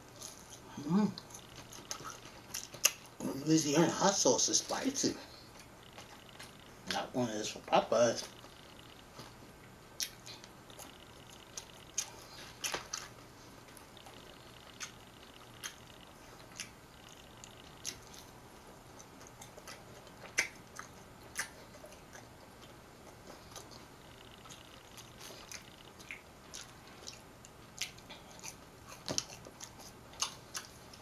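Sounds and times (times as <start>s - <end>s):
faint steady hum: 0.0s - 31.0s
person chewing crunchy food: 0.0s - 31.0s
mouth smacks: 19.2s - 22.3s.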